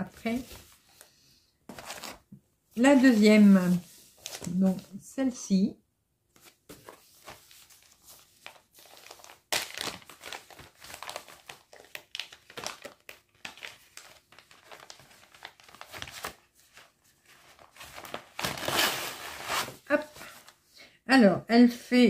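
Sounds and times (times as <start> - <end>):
packaging crinkling: 6.4 - 19.8.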